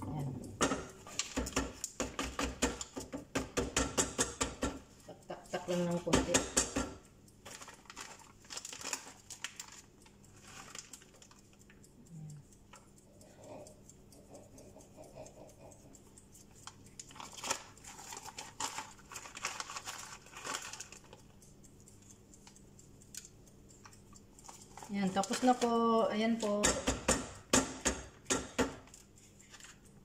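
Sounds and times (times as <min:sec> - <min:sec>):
plastic bag crinkling: 0:07.4 - 0:11.4, 0:17.2 - 0:21.2.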